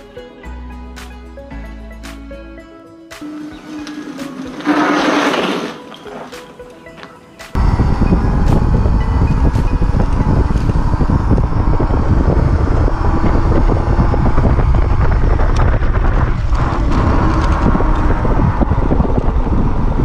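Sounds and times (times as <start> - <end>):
tyre and road rumble: 3.3 - 20.0
wind buffeting microphone: 7.5 - 20.0.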